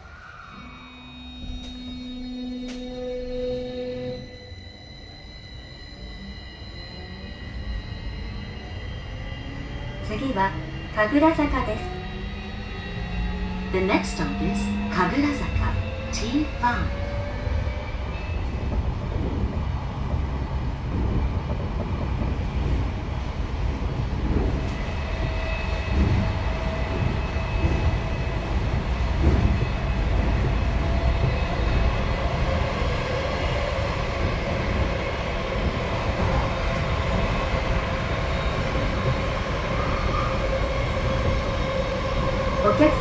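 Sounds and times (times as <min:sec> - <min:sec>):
train motor whine: 0:00.2 - 0:19.5
wheels rumbling on rail: 0:06.6 - 0:43.0.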